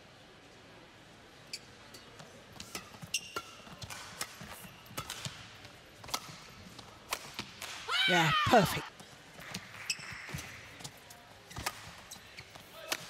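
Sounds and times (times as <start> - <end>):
shoes squeaking on court: 1.5 - 3.8, 9.4 - 12.9
rackets striking shuttlecock: 2.6 - 7.9, 10.3 - 12.1.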